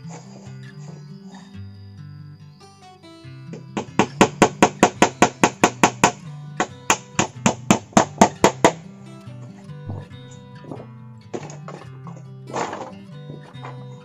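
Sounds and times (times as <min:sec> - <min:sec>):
plucked string music: 0:00.0 - 0:14.0
tool striking bamboo: 0:03.6 - 0:08.8.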